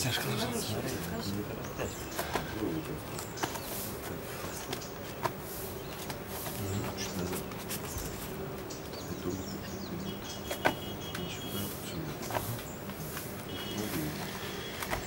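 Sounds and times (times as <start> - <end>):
steady low hum: 0.0 - 15.0
faint bird chirps: 5.6 - 15.0.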